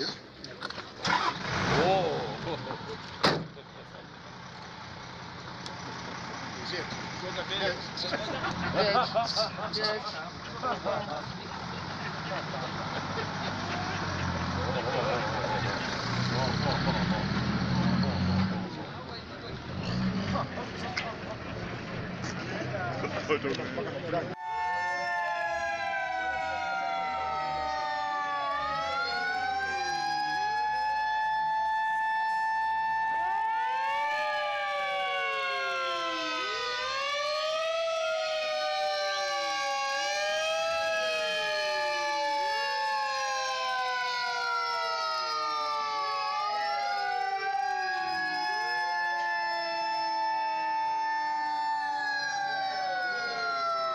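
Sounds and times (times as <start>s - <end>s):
fire engine sirens wailing: 1.1s - 1.7s, 11.6s - 19.7s, 24.3s - 53.9s.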